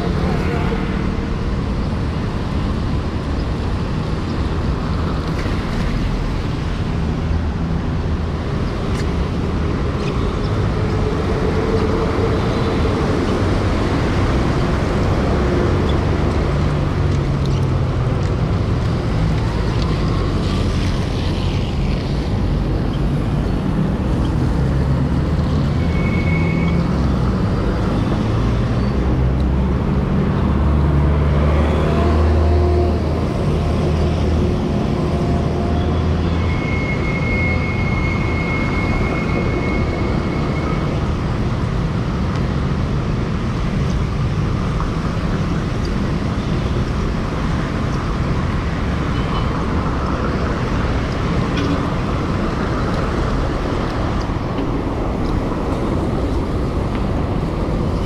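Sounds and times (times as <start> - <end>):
street traffic rumble: 0.0 - 58.0.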